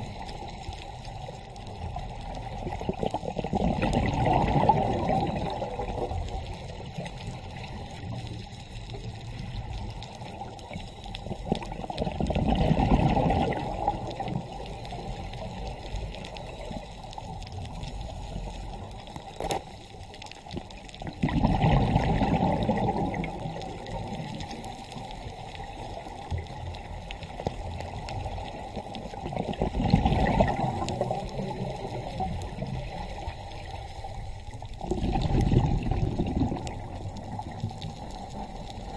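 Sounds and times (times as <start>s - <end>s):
muffled underwater noise: 0.0s - 38.9s
diver exhaling bubbles: 2.6s - 6.2s, 11.5s - 14.6s, 21.0s - 24.4s, 29.1s - 33.0s, 34.8s - 37.7s.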